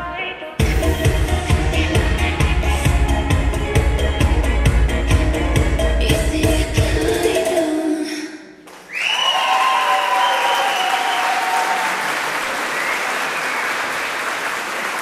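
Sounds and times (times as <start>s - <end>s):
audience applauding: 8.7s - 15.0s
loud cheering: 8.8s - 15.0s.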